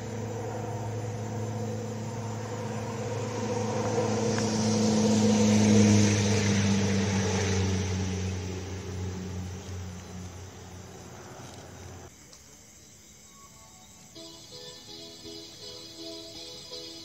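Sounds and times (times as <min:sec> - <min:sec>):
engine drone: 0:00.0 - 0:12.1.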